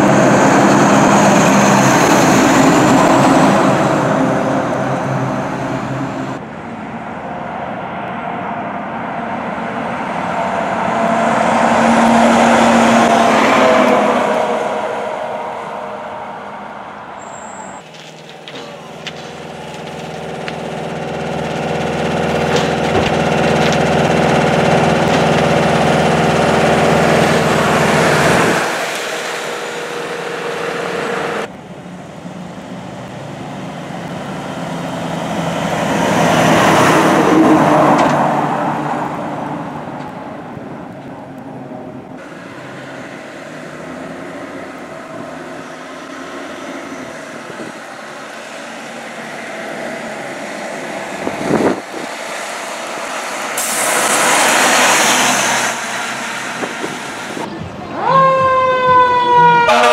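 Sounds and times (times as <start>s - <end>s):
vehicle passing: 0.0s - 17.2s, 17.8s - 31.5s
fire truck diesel engine: 0.0s - 59.9s
road noise: 0.0s - 59.9s.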